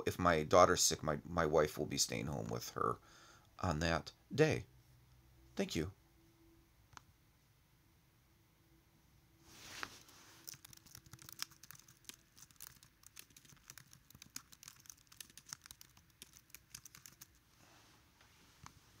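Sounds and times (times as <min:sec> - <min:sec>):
faint keyboard typing: 0:10.4 - 0:17.4.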